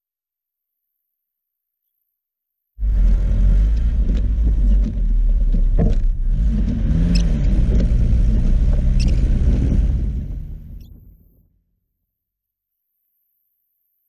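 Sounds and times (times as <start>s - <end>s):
car engine under load: 2.8s - 11.4s.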